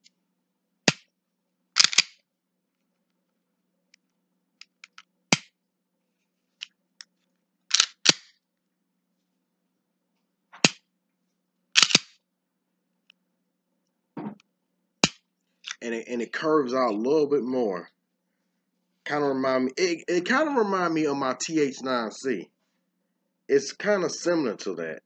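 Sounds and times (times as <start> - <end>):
pistol slide racking: 1.8 - 2.1, 7.7 - 8.3, 11.8 - 12.1.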